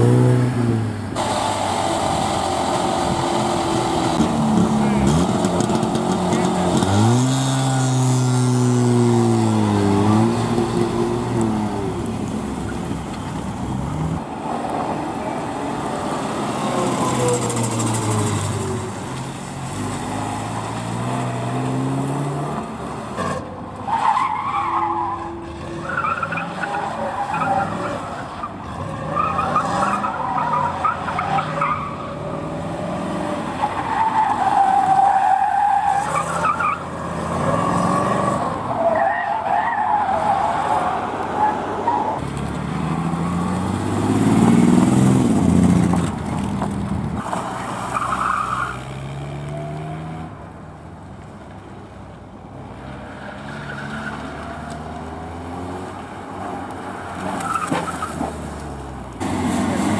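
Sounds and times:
car engines revving: 0.0s - 59.9s.

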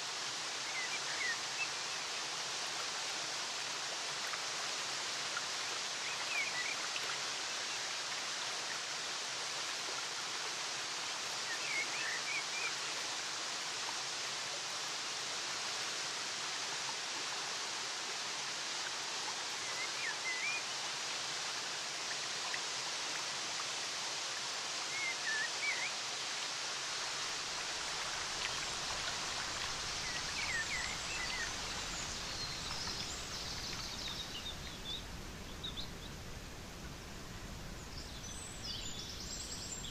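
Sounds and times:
running water rushing: 0.0s - 39.9s
small birds chirping: 28.4s - 36.2s.

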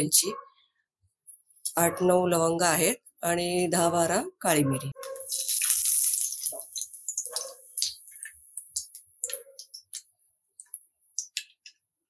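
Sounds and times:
spices sizzling in hot oil: 5.1s - 11.7s
oil crackling and popping: 5.1s - 12.0s.

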